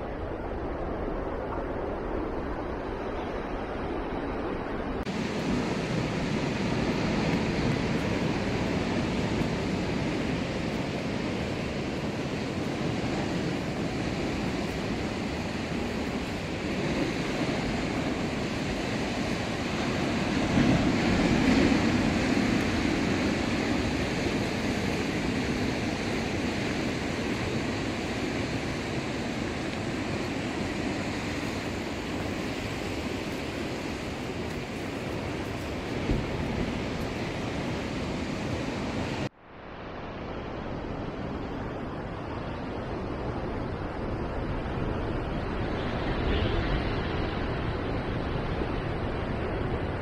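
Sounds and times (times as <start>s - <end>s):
ocean surf rushing: 0.0s - 50.0s
wind: 0.0s - 50.0s.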